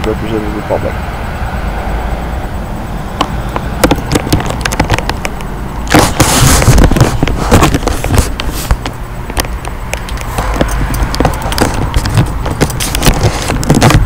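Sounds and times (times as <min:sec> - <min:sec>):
low steady rumble: 0:00.0 - 0:14.0
phone handling clicks and knocks: 0:03.2 - 0:14.0
phone rubbing noise: 0:03.2 - 0:14.0.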